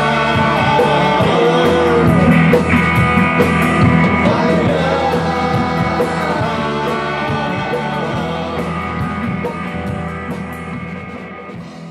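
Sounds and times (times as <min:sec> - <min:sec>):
voices singing: 0:00.0 - 0:10.2
rock band playing live: 0:00.0 - 0:11.9.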